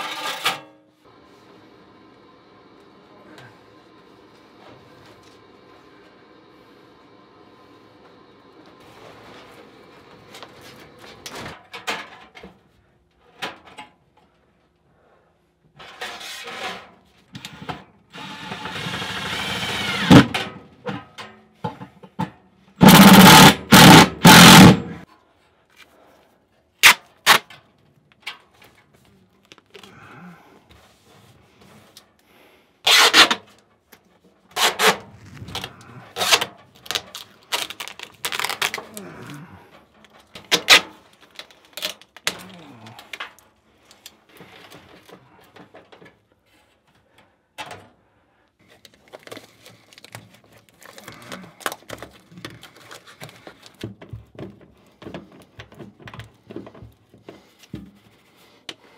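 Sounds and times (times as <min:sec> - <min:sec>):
cordless drill driving screws: 0:18.2 - 0:20.2
foil tape pulled off roll: 0:34.6 - 0:39.3, 0:40.4 - 0:42.4.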